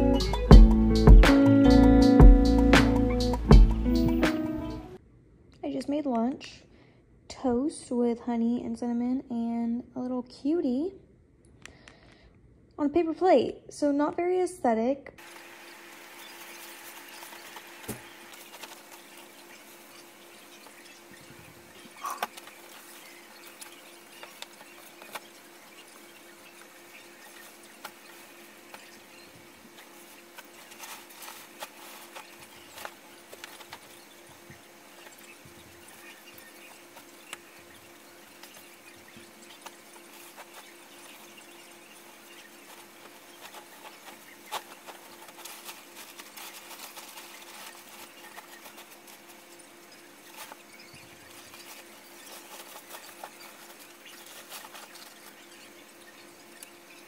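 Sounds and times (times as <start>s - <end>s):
steady low hum: 15.1s - 57.0s
bedsheets rustling: 15.2s - 35.8s, 38.3s - 56.5s.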